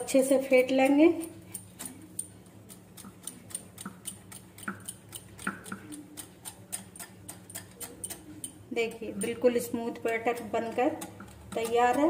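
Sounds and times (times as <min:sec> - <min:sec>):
whisk ticking against glass bowl: 0:00.0 - 0:12.0.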